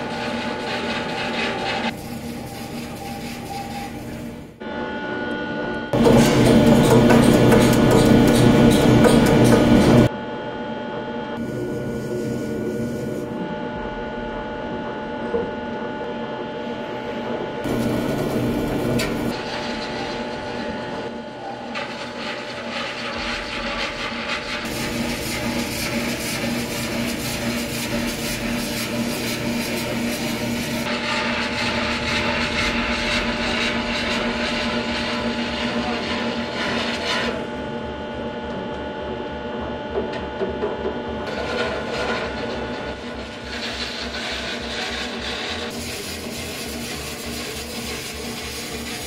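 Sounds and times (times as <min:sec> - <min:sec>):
bars scraping spinning metal: 0:00.0 - 0:04.5
lathe machine hum: 0:00.0 - 0:49.0.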